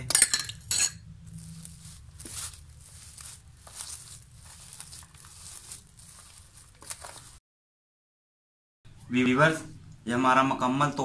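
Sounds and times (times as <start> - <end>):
metal spoon clinking: 0.0 - 1.0
hands kneading wet mixture: 1.2 - 7.4.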